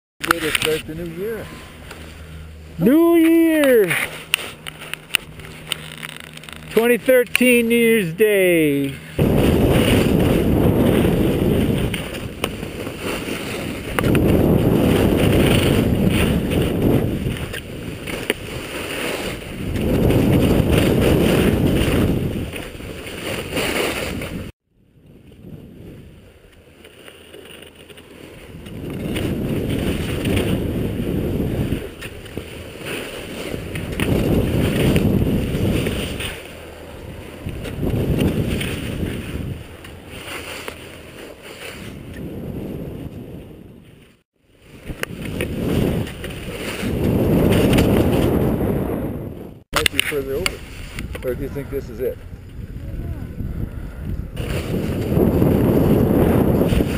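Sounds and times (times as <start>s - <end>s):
wind rushing over microphone: 0.2s - 26.5s, 28.3s - 56.9s.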